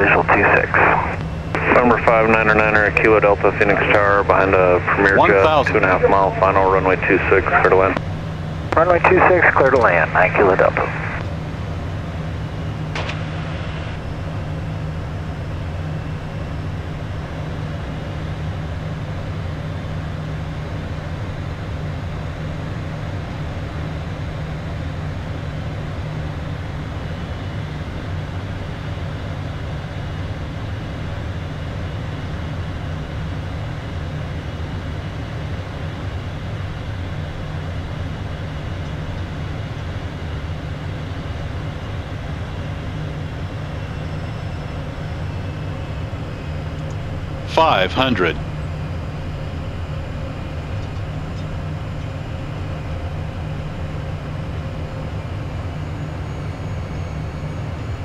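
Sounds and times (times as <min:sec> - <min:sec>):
jet cockpit engine drone: 0:00.0 - 0:58.0.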